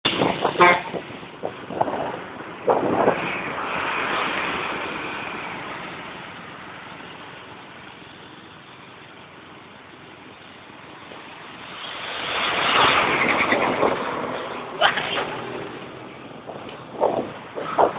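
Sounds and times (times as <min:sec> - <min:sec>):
vehicle horn toots: 0:00.6 - 0:01.0
large vehicle passing: 0:11.4 - 0:17.9.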